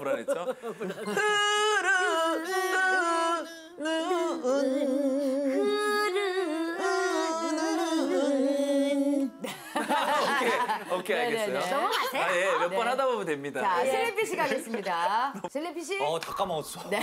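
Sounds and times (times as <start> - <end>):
person singing with vibrato: 1.0 - 9.6.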